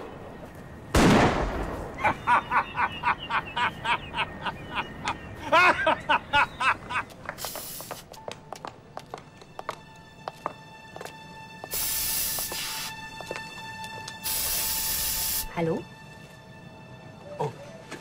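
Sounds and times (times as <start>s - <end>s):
shotgun blast: 0.9s - 2.0s
cackling laughter: 2.0s - 7.1s
aerosol spray can hiss: 7.4s - 8.2s, 11.7s - 13.1s, 14.2s - 15.6s
soft music: 7.8s - 18.0s.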